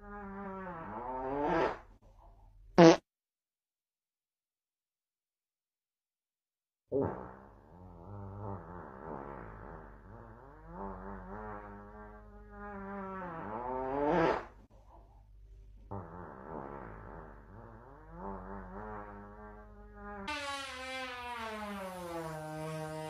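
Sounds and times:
drawn-out fart sound: 0.0s - 2.0s, 2.8s - 3.1s, 6.9s - 14.7s, 15.8s - 23.0s.

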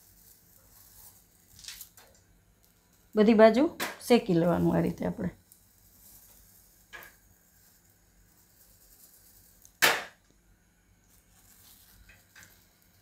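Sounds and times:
gas burner hiss: 0.0s - 13.0s.

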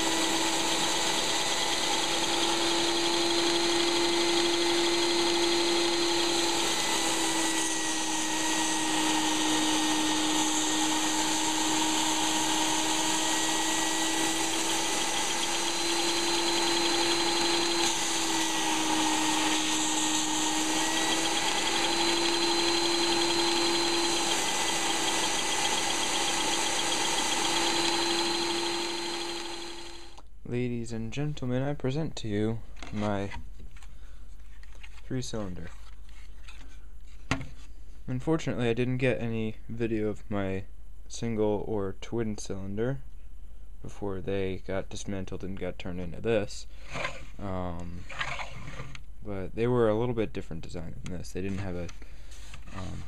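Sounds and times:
shop vac motor running: 0.0s - 30.2s
small air engine running roughly: 19.7s - 30.2s.

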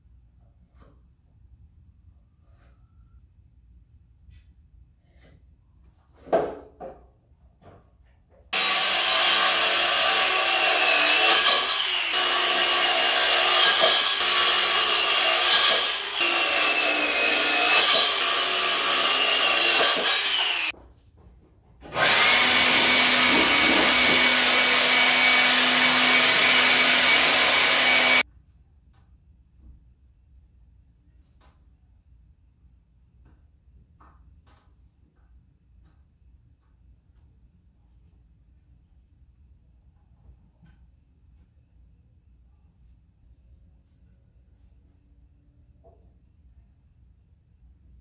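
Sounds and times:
knock: 6.2s - 7.8s
circular saw cutting wood: 8.6s - 20.7s, 21.8s - 28.2s
electric leaf blower running: 8.6s - 20.7s, 21.9s - 28.2s.

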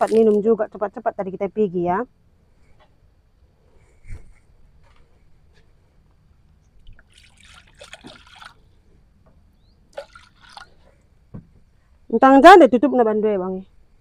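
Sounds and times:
water trickling and splashing: 0.0s - 0.6s, 6.7s - 9.2s, 9.9s - 11.2s.

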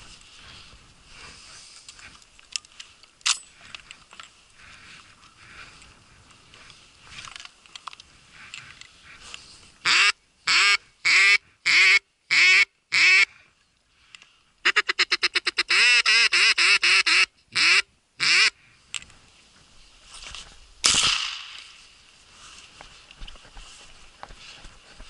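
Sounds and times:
duck call quacks: 9.8s - 13.4s, 14.6s - 18.6s.

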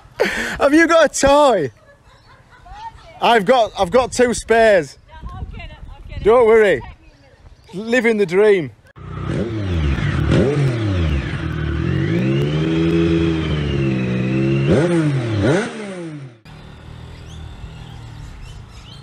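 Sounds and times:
motorcycle engine revving: 9.0s - 18.3s.

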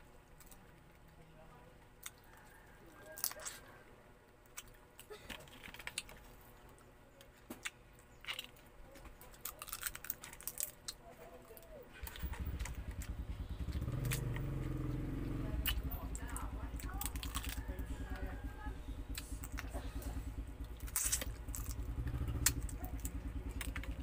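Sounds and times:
crab shells cracking: 2.0s - 3.7s, 4.3s - 6.3s, 7.4s - 14.8s, 15.6s - 19.8s, 20.4s - 24.0s
low engine rumble: 10.6s - 24.0s.

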